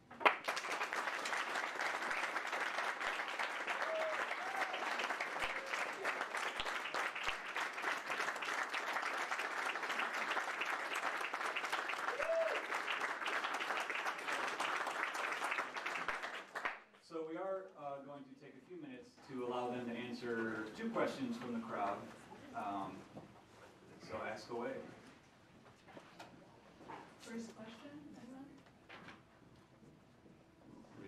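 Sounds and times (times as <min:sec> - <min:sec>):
crowd applauding: 0:00.0 - 0:16.8.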